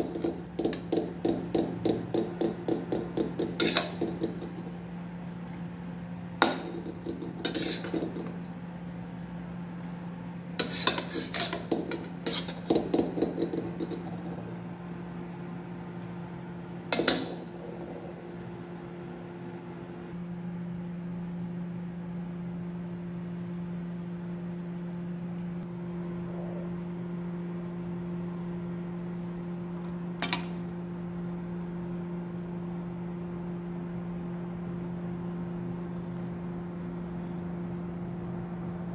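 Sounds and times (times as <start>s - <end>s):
steady low hum: 0.0s - 38.9s
metal utensils clinking on pan: 3.5s - 4.5s, 6.4s - 8.4s.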